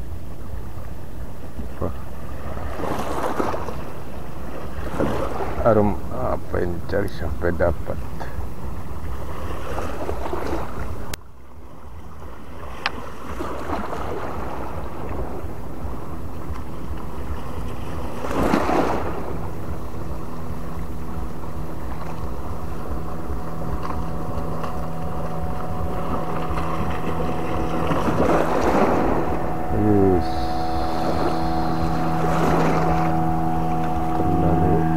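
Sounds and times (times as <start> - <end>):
water lapping at shore: 0.0 - 34.9
low motor hum: 14.1 - 34.9.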